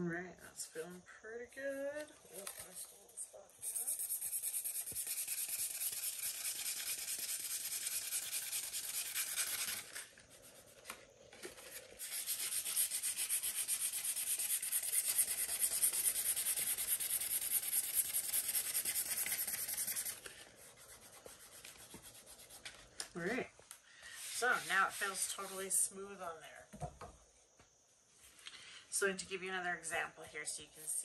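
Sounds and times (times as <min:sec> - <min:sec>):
sandpaper rubbing by hand: 0:03.6 - 0:11.0, 0:11.9 - 0:22.9, 0:24.2 - 0:25.8.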